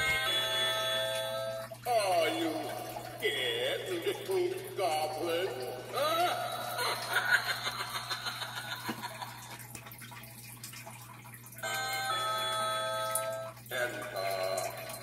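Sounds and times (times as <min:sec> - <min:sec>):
held electronic chime tone: 0:00.0 - 0:01.7
spooky voice: 0:00.0 - 0:07.8, 0:13.7 - 0:14.9.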